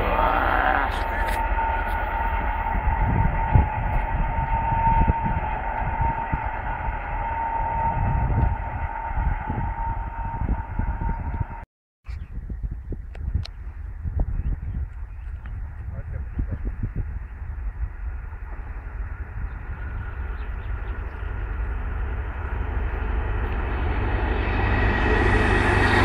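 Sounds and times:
low uneven rumble: 0.0 - 11.6, 12.2 - 26.0
diesel train droning: 0.0 - 11.7, 16.7 - 26.0.

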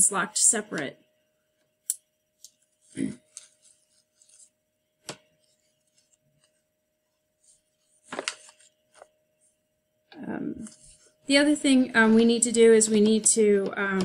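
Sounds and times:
faint steady whine: 0.0 - 14.0
rustling on a desk: 2.4 - 9.6.

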